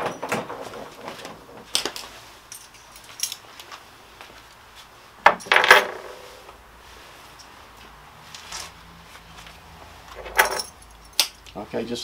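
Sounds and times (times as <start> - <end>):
metal fittings clinking on wood: 1.7 - 3.8, 10.2 - 11.6.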